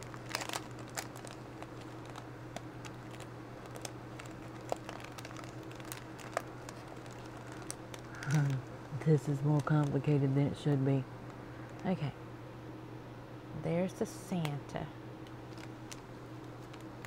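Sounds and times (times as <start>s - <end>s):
plastic bag of confetti crinkling: 0.0s - 8.6s.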